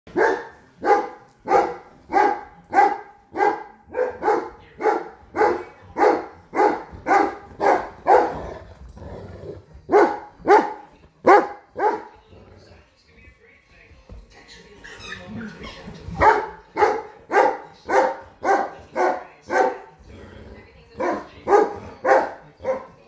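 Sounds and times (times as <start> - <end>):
large dog barking: 0.1 - 8.7, 9.9 - 12.2, 16.2 - 20.0, 21.0 - 23.0.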